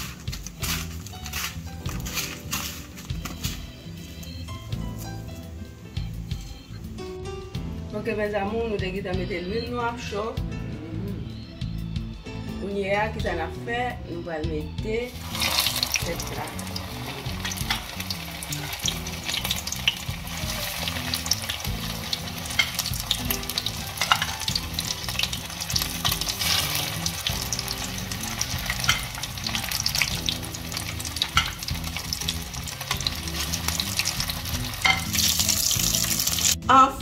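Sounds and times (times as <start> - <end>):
frying sizzle with crackling pops: 0.0 - 4.4, 15.1 - 36.6.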